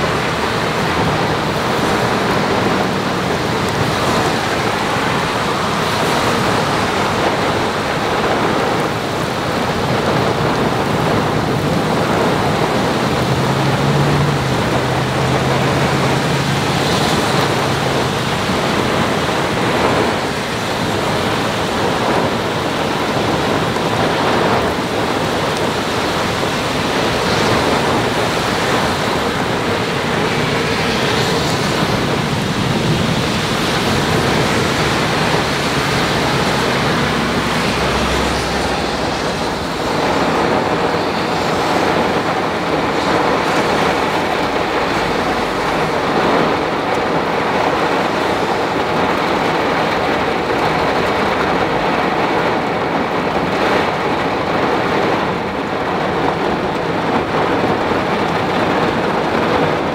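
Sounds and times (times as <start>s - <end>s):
rain: 0.0s - 59.9s
surf breaking on shore: 0.0s - 59.9s
wind: 0.0s - 59.9s.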